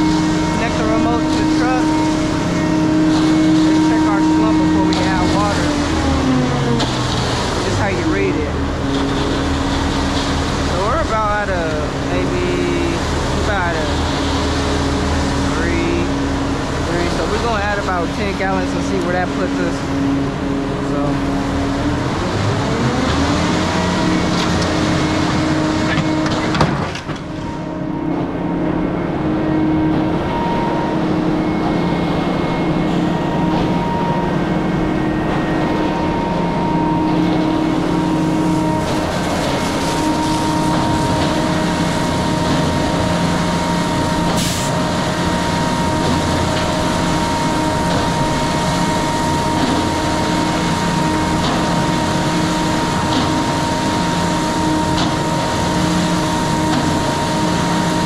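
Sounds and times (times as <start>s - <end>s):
hose water spraying on metal: 0.0s - 20.0s, 37.2s - 58.0s
truck engine and turning drum: 0.0s - 58.0s.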